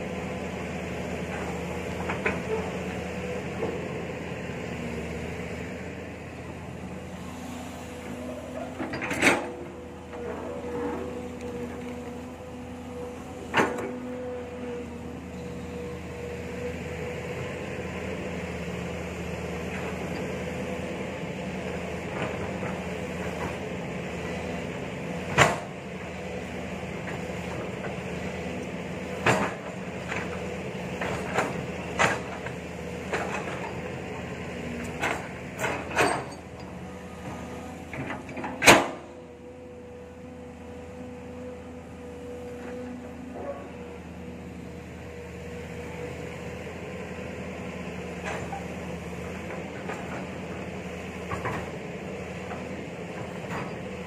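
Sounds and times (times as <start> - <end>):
excavator running with whine: 0.0 - 54.0.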